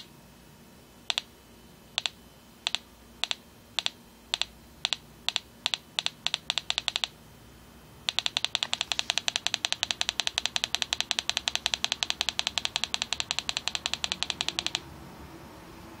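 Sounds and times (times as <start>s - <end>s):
small speaker clicking: 1.1s - 1.3s, 2.0s - 7.2s, 8.1s - 14.9s.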